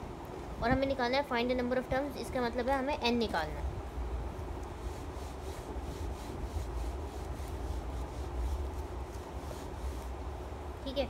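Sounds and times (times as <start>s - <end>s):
steady low hum: 0.0s - 11.0s
duster rubbing on whiteboard: 4.6s - 10.3s.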